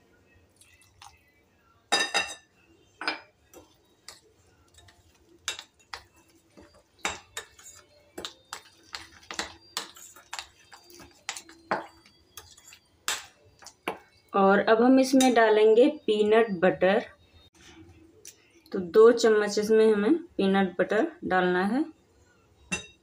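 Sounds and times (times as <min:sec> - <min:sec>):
metal spoon clinking against bowl: 0:01.9 - 0:14.1, 0:22.7 - 0:23.0.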